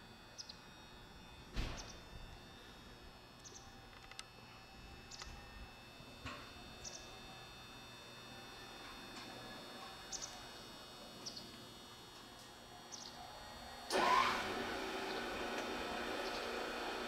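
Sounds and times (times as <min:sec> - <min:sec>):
bird chirps: 0:03.4 - 0:03.7, 0:06.8 - 0:07.2, 0:10.0 - 0:10.4, 0:12.9 - 0:13.3.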